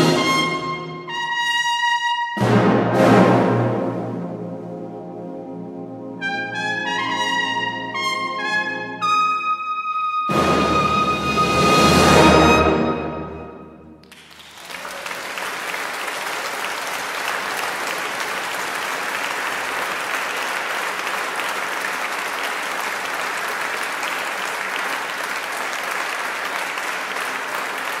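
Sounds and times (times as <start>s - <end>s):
audience applauding: 14.0s - 28.0s.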